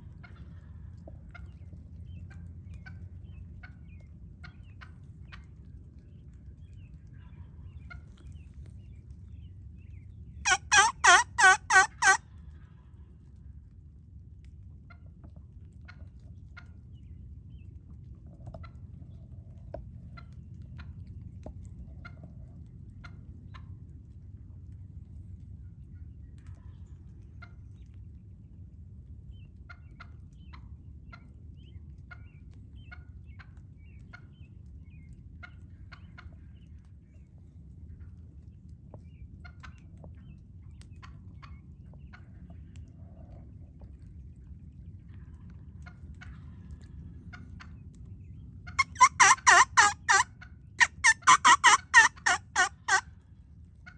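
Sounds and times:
turkey yelps: 10.4s - 12.2s, 48.6s - 53.1s.

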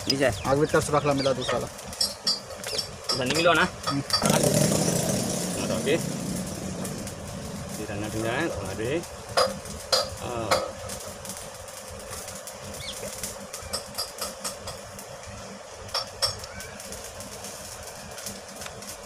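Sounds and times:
steady background hum: 0.0s - 19.0s
sharp metal clicks and knocks: 9.3s - 11.1s, 12.1s - 15.0s.

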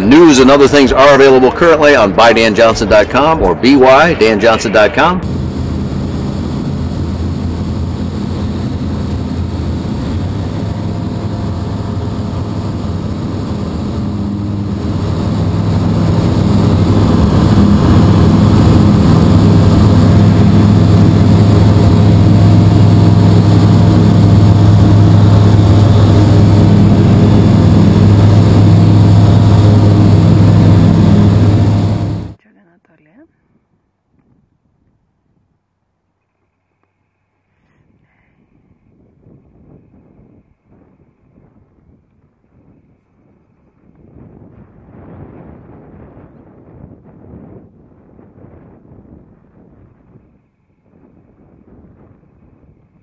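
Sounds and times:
light aircraft engine drone: 0.0s - 32.4s.

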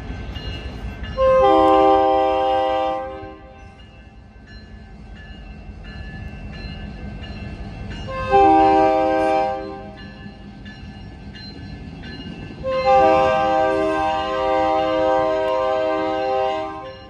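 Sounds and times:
locomotive air horn blast: 1.2s - 3.6s, 8.1s - 9.9s, 12.6s - 16.9s
electronic crossing bells: 3.6s - 15.0s.

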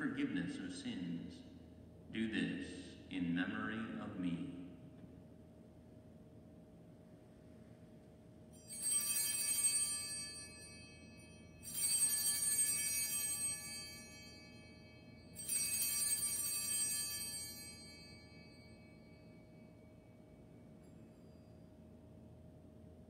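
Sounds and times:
altar bells jangling: 8.6s - 21.9s.

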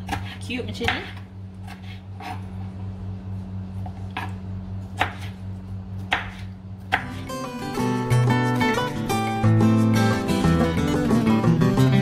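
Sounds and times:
knife chopping on wooden board: 0.0s - 2.5s, 3.8s - 4.4s, 5.0s - 5.4s, 6.0s - 7.2s
low steady hum: 0.0s - 12.0s.

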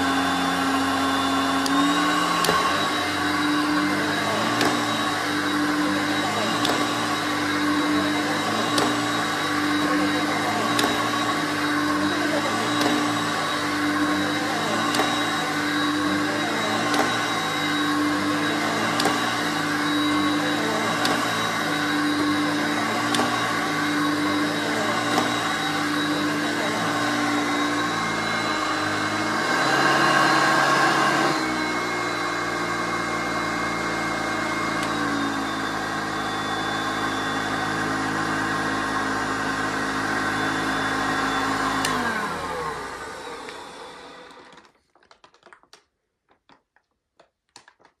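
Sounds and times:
vacuum cleaner running on carpet: 0.0s - 44.7s
vacuum motor winding down: 0.0s - 44.7s.

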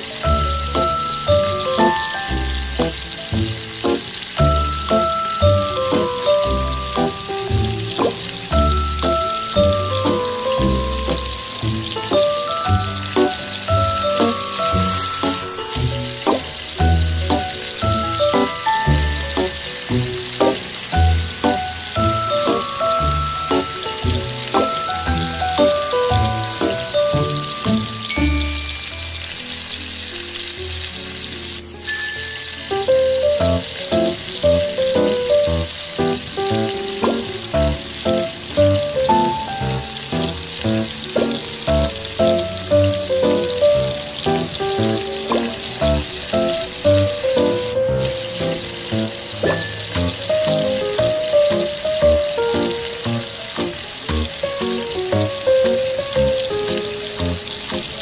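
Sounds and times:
background music with steady beat: 0.0s - 29.0s
meat sizzling in a wok: 0.0s - 58.0s.

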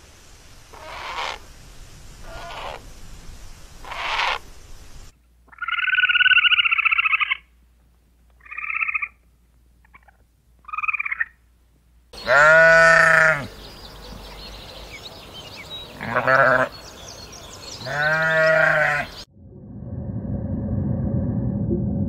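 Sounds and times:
ground squirrel trilled calls: 0.7s - 1.4s, 5.5s - 7.5s, 8.4s - 9.2s, 9.8s - 11.4s
sheep bleating: 12.2s - 13.5s, 16.0s - 16.8s, 17.8s - 19.2s.

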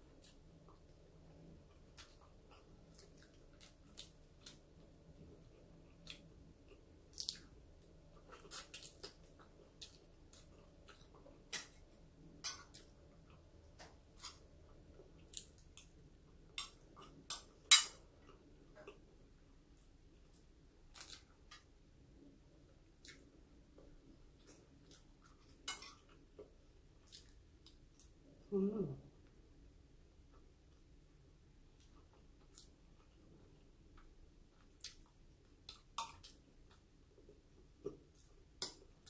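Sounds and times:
person chewing: 1.6s - 4.8s, 5.5s - 11.9s, 12.6s - 19.1s, 22.9s - 28.2s, 31.8s - 39.0s.

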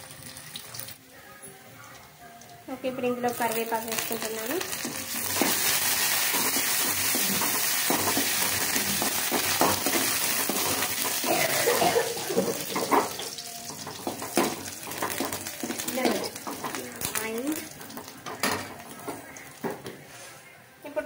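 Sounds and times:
vegetables sizzling in hot oil: 3.2s - 19.7s.

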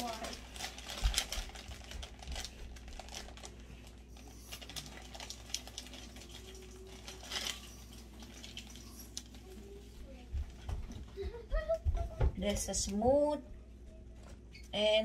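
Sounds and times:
plastic bag crinkling: 0.0s - 9.8s.

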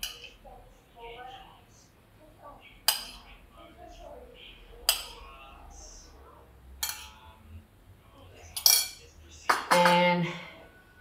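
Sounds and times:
metal spoon clinking against bowl: 0.0s - 0.3s, 2.9s - 3.3s, 6.8s - 7.2s, 8.6s - 9.1s.

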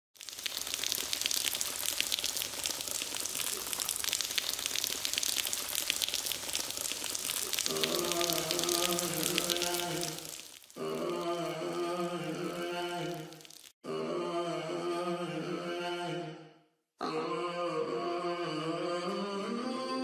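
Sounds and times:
rain pattering and dripping: 0.2s - 11.8s, 12.4s - 13.8s
low chanting voice: 7.7s - 10.2s, 10.8s - 16.4s.

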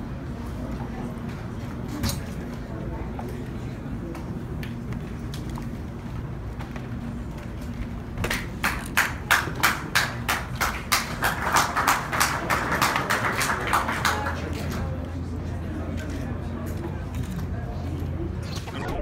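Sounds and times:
people clapping: 8.2s - 15.2s.

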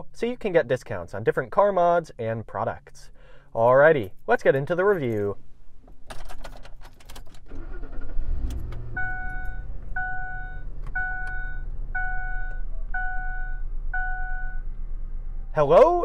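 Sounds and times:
engine starting and idling: 7.2s - 11.1s
dashboard warning chime: 9.0s - 14.7s.

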